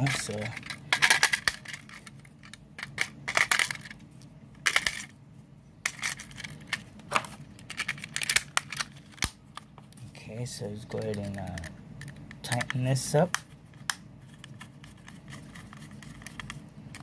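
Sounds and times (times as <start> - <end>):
batteries clicking into plastic compartment: 0.0 - 4.0, 5.9 - 9.4.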